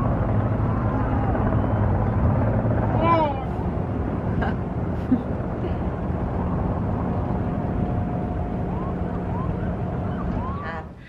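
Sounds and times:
boat motor humming: 0:00.0 - 0:11.0
water noise: 0:00.0 - 0:11.0
wind: 0:00.0 - 0:11.0.

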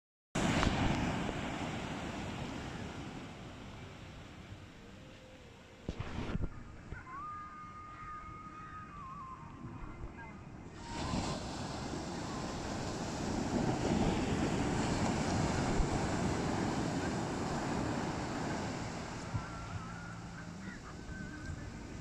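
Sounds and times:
wind on microphone: 0:00.4 - 0:03.9, 0:05.8 - 0:22.0
surf breaking on beach: 0:00.4 - 0:04.8, 0:10.7 - 0:22.0.

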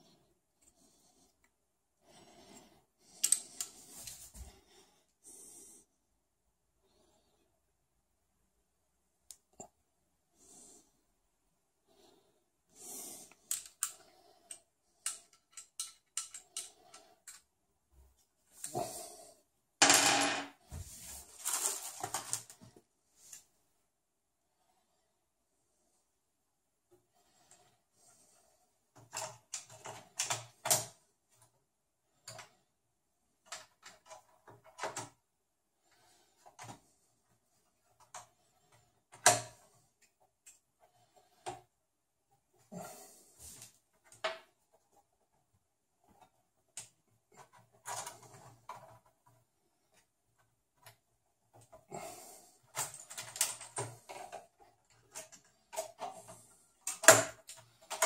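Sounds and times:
soft breaths: 0:00.0 - 0:07.9, 0:09.6 - 0:19.6, 0:27.0 - 0:29.8, 0:35.6 - 0:43.9
metal and plastic parts clicking: 0:03.2 - 0:03.7, 0:13.5 - 0:17.5, 0:52.7 - 0:58.0
small clicks and taps: 0:13.4 - 0:17.5.

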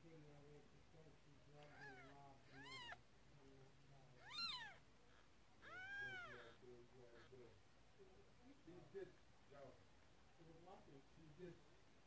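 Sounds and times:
cat mewing: 0:01.6 - 0:03.0, 0:04.2 - 0:04.8, 0:05.6 - 0:06.6.

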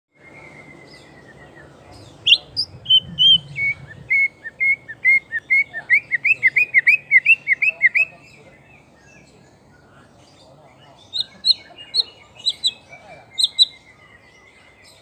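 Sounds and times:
bird singing whistled notes: 0:00.1 - 0:09.8, 0:11.0 - 0:15.0.

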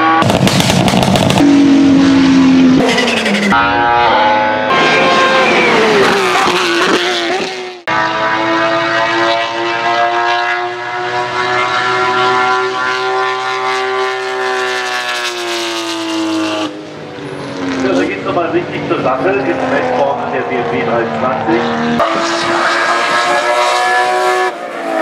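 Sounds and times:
engine at high revs: 0:00.0 - 0:03.9, 0:04.6 - 0:25.0
racing engine crackling off throttle: 0:00.2 - 0:03.6.

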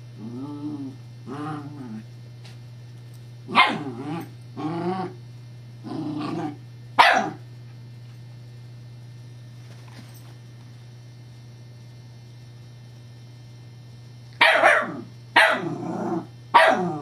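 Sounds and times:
steady low hum: 0:00.0 - 0:17.0
puppy barking: 0:03.5 - 0:04.0, 0:07.0 - 0:07.4, 0:14.4 - 0:15.7, 0:16.5 - 0:17.0.

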